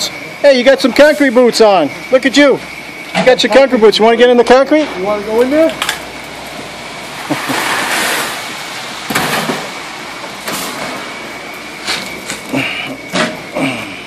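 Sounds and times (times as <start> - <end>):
wet concrete sliding out: 7.1 - 11.2
wheelbarrow knocks: 9.1 - 9.7.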